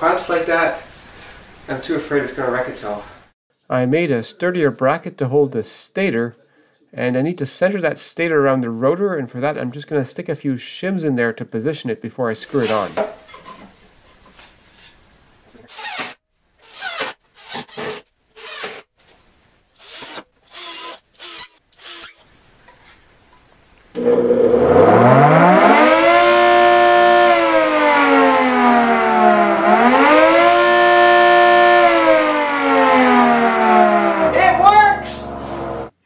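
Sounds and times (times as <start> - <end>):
air-raid siren wailing: 24.0 - 35.9.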